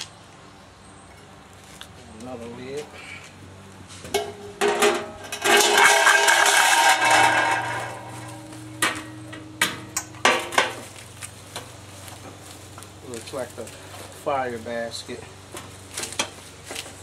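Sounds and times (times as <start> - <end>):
metal lid clanging: 4.1 - 10.9.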